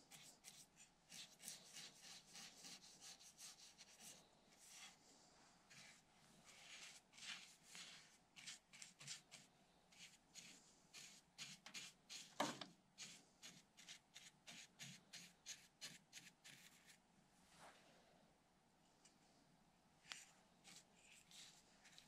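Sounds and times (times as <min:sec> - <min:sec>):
brush stroking on wood: 0:05.7 - 0:12.4, 0:20.1 - 0:22.0.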